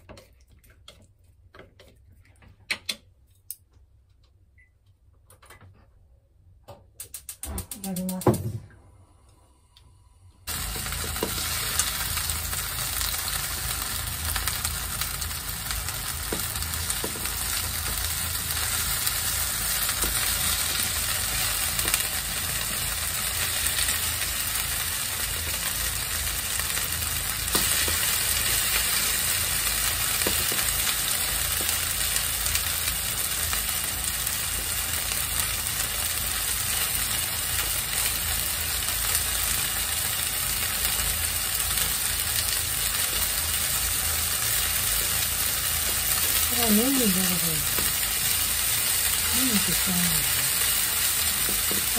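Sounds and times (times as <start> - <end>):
shrimp sizzling in frying pan: 10.5 - 51.9.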